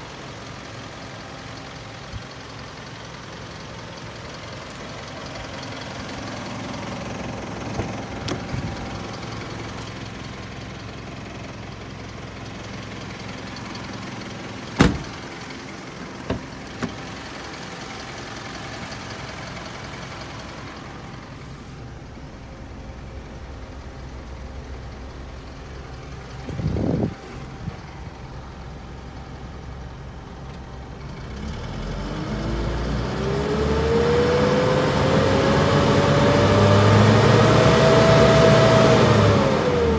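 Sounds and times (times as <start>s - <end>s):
truck engine idling and revving: 0.0s - 39.9s
short thump: 14.8s - 15.2s, 16.3s - 17.0s.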